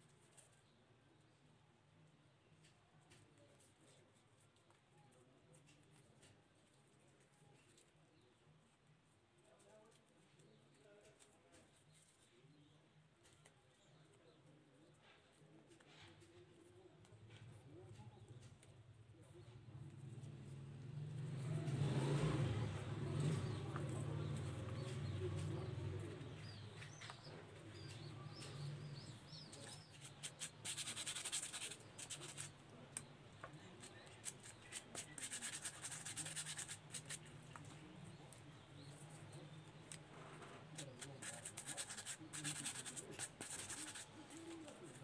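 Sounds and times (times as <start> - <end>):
faint bird chirps: 11.7 - 35.3
hand tool scratching foam: 26.4 - 32.6, 33.6 - 37.6, 40.6 - 45.0.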